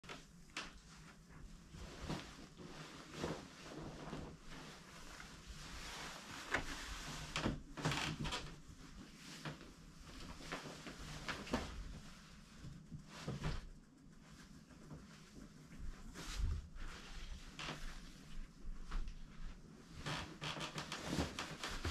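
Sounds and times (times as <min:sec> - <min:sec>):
fabric rustling: 0:00.0 - 0:21.9
comforter swishing: 0:00.1 - 0:07.6, 0:15.2 - 0:21.9.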